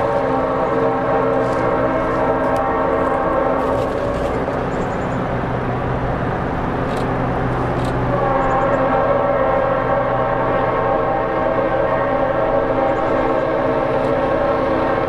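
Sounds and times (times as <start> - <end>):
locomotive horn chord: 0.0 - 4.6, 8.1 - 15.0
diesel locomotives rumbling: 0.0 - 15.0.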